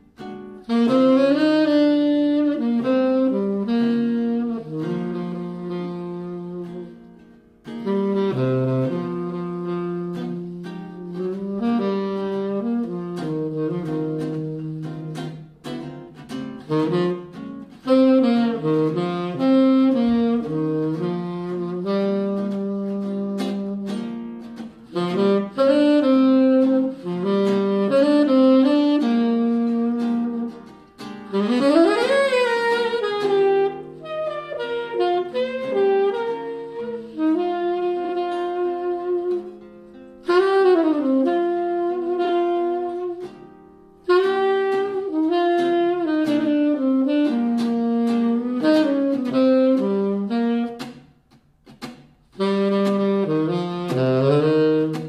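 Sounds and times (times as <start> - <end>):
jazz saxophone melody: 0.0 - 55.0.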